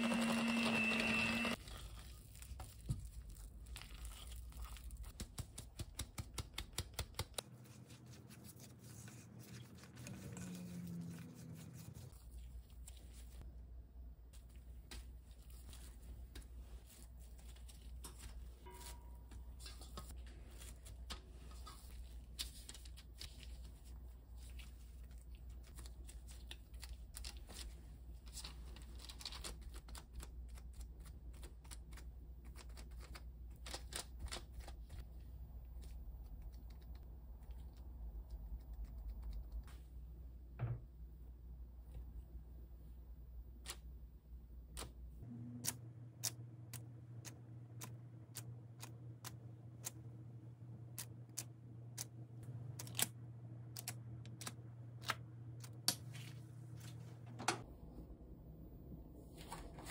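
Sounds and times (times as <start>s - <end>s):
hands shaping cookie dough: 1.4s - 40.0s
low steady hum: 34.9s - 59.9s.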